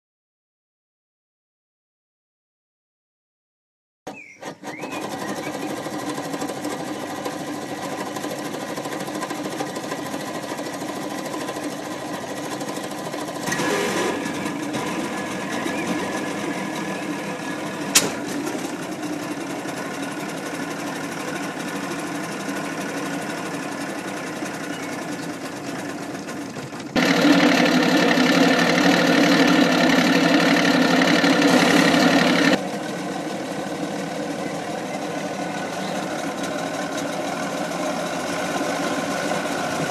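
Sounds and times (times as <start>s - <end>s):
outboard motor running: 4.1s - 39.9s
sharp click: 17.9s - 18.4s.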